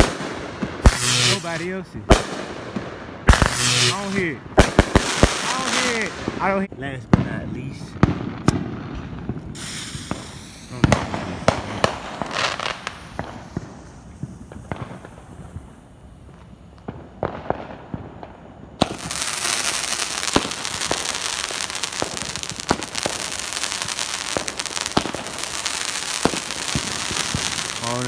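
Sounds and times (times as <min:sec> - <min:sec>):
firework cake hissing: 0:00.0 - 0:02.6, 0:03.3 - 0:06.5, 0:09.4 - 0:16.0, 0:18.8 - 0:28.0
firework pops and bangs: 0:00.0 - 0:06.5, 0:07.1 - 0:28.0.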